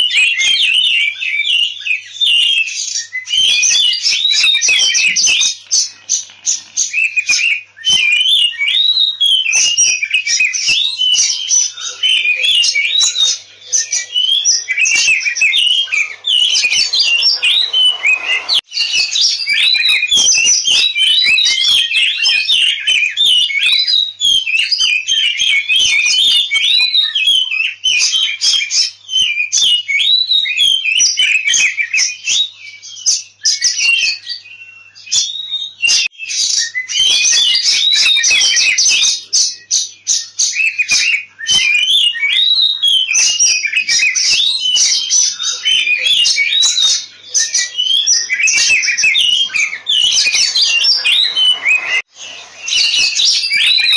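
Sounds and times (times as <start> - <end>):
songbird whistling and chirping: 0.0 - 53.9.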